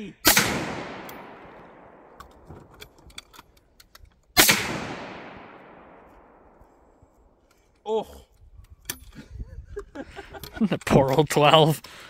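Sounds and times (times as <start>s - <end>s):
shotgun blast with echo: 0.3s - 2.1s, 4.4s - 6.4s.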